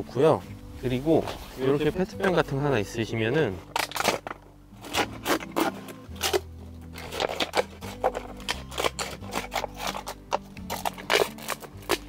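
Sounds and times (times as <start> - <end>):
faint background music: 0.0 - 12.0
scissors cutting plastic bottle: 3.6 - 12.0.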